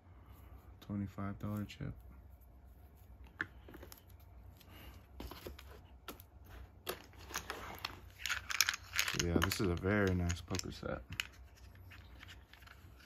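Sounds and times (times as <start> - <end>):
clay poker chips clicking: 7.2 - 11.6
poker chips rattling: 7.2 - 13.0.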